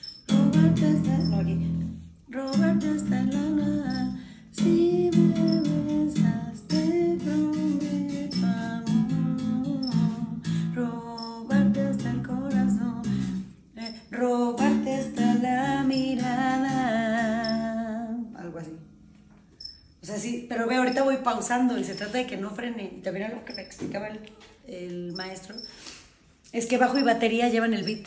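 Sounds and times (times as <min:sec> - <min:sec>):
electric bass through an amplifier: 0:00.0 - 0:13.7
music with sung melody: 0:00.0 - 0:18.3.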